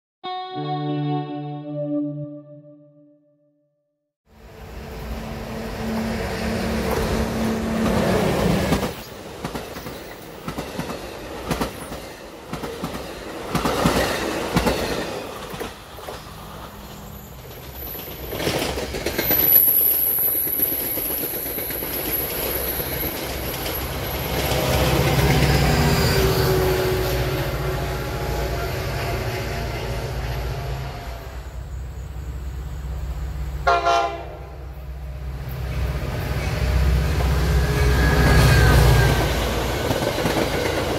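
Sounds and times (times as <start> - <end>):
train wheels clattering on rails: 6.6 - 27.5, 35.6 - 40.9
train horn blast: 25.7 - 31.6, 33.6 - 34.8
high wheel squeal: 37.4 - 39.7.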